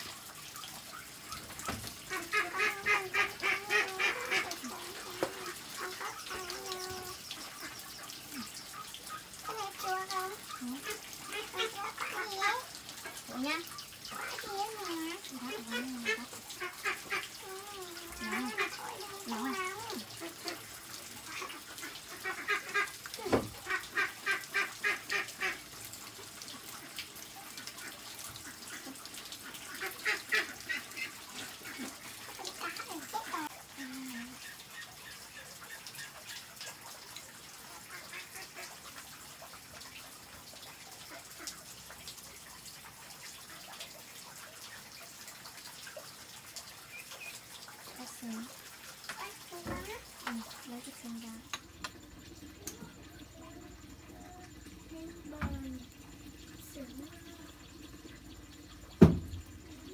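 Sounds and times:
ducks quacking: 0.9s - 9.3s, 14.9s - 25.7s, 27.8s - 33.5s.

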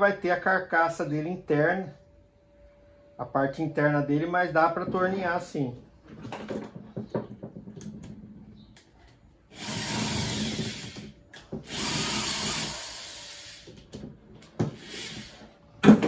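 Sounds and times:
power screwdriver running: 9.5s - 13.8s, 14.8s - 15.4s.

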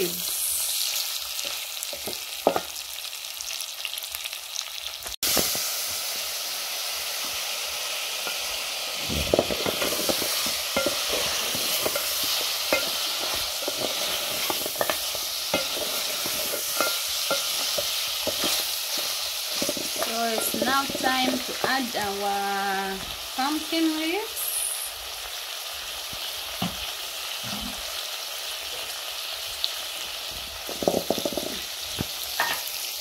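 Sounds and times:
meat sizzling in a pot: 0.0s - 33.0s
wooden spoon scraping a pot: 9.0s - 22.2s.

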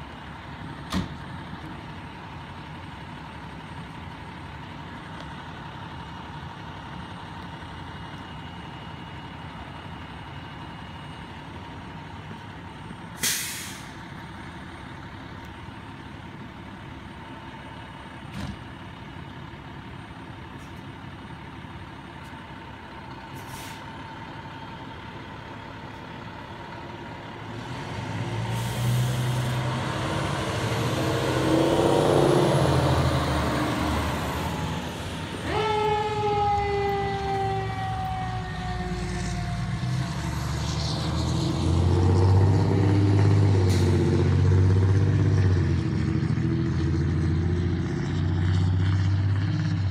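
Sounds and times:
diesel engine idling: 0.0s - 40.2s
air brakes hissing: 13.2s - 14.0s, 23.4s - 24.0s, 28.5s - 29.5s
truck engine revving: 27.4s - 49.9s.

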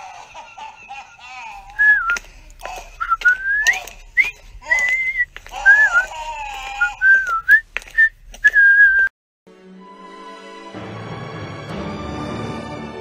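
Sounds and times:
person whistling a tune: 1.8s - 2.2s, 3.0s - 6.1s, 6.8s - 9.1s.

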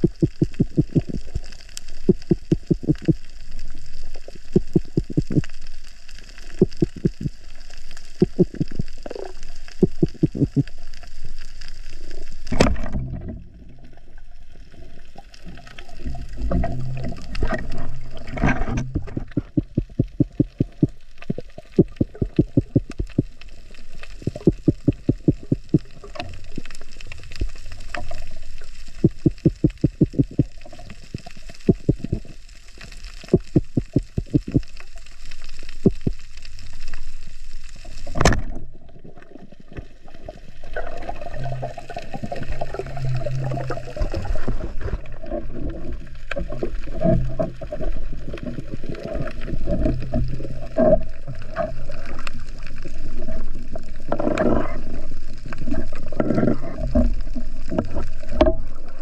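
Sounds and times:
rapid gurgling pulses: 0.0s - 3.3s, 6.5s - 7.4s, 8.1s - 10.7s, 15.9s - 26.6s, 28.0s - 32.4s, 33.2s - 34.8s, 40.2s - 59.0s
muffled underwater noise: 0.0s - 59.0s.

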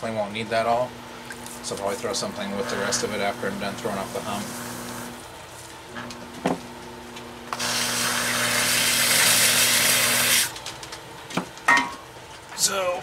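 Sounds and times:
potter's wheel motor hum: 0.8s - 10.6s.

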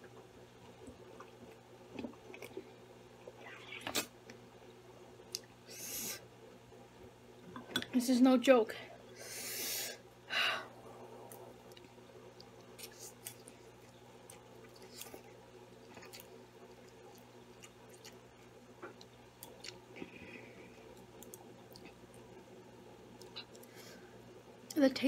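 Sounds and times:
person chewing noodles: 0.6s - 4.1s, 11.2s - 22.4s.

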